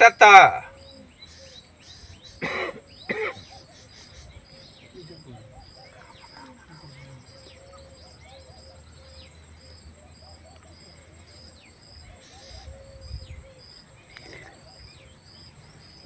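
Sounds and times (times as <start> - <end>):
bird chirps: 0.0 - 16.0
high insect whine: 0.0 - 16.0.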